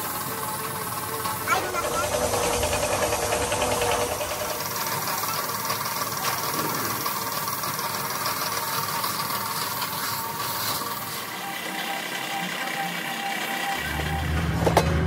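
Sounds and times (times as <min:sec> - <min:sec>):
paint spray gun hissing: 0:00.0 - 0:11.4.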